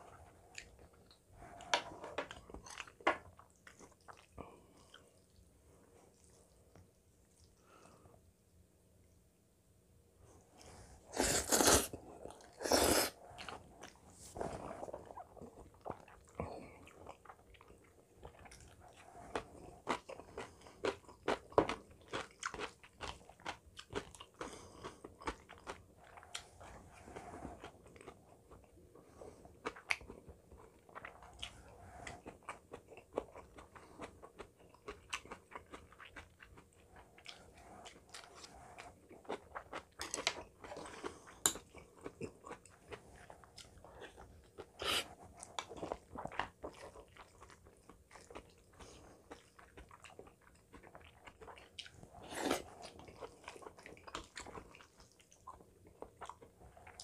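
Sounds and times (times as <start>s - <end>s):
chewing with mouth smacks: 0.1s - 5.5s, 13.4s - 28.8s, 29.5s - 57.0s
noodle slurp: 11.1s - 13.6s.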